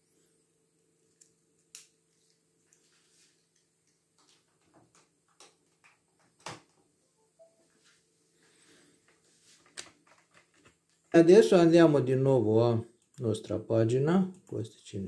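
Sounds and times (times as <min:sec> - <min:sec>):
faint clicks and taps: 0:00.8 - 0:06.8.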